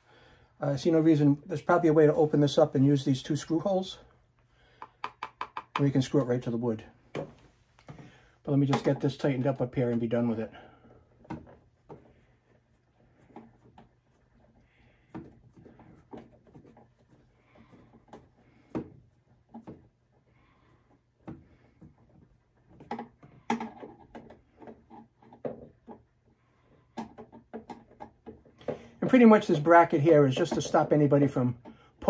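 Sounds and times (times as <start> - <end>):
small clicks taps and scrapes: 4.7 - 6.4, 11.1 - 20.3, 20.9 - 29.0.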